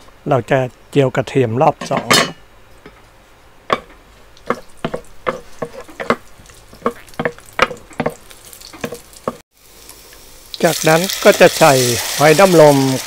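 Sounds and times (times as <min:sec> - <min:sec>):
spatula scraping and tapping pot: 0:03.7 - 0:09.4
garlic sizzling in oil: 0:03.7 - 0:13.0.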